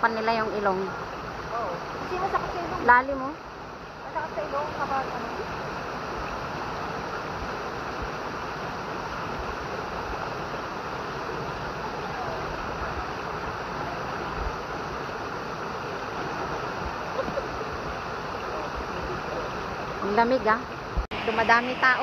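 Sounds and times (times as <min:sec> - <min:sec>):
waterfall pouring into pool: 0:07.6 - 0:19.9.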